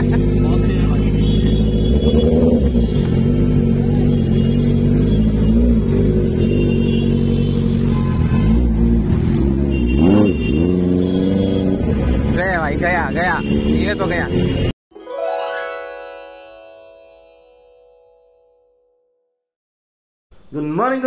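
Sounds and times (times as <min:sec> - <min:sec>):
motorcycle engine revving: 0:00.0 - 0:12.4.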